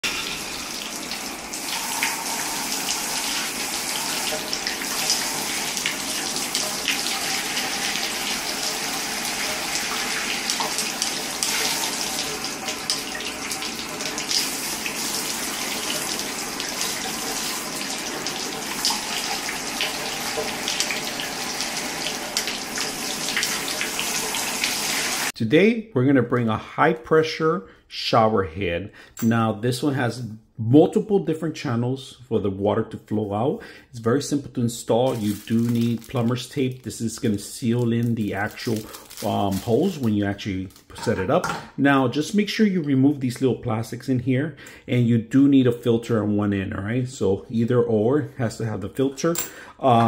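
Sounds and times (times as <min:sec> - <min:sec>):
shower spraying into bathtub: 0:00.0 - 0:25.4, 0:35.0 - 0:40.1.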